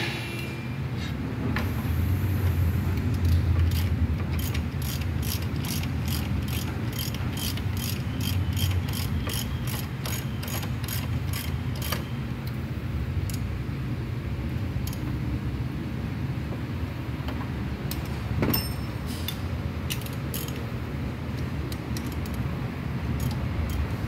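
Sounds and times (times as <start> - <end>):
socket ratchet clicking: 3.0 - 12.6, 19.3 - 20.7, 21.4 - 22.5, 23.1 - 23.9.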